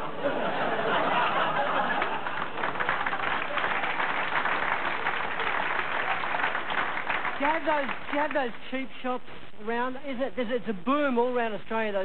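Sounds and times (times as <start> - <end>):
audience laughing: 0.0 - 4.0
audience clapping: 1.6 - 8.6.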